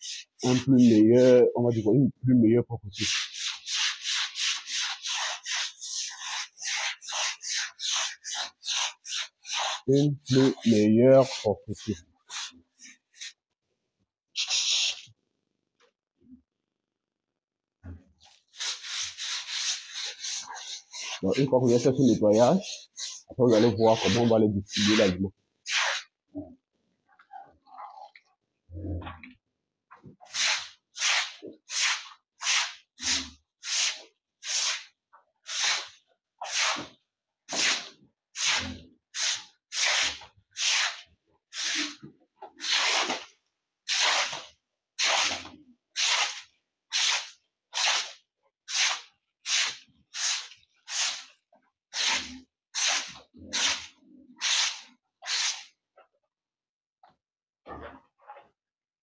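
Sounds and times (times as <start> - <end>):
broom sweeping wet concrete: 0.0 - 1.3, 2.8 - 13.4, 14.4 - 15.1, 18.2 - 26.1, 30.2 - 55.8.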